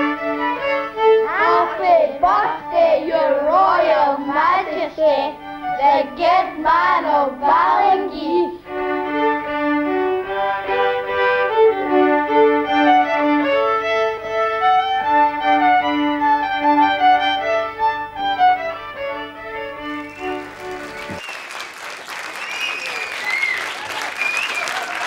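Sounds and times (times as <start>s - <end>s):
fiddle tune: 0.0s - 21.2s
applause: 20.1s - 25.0s.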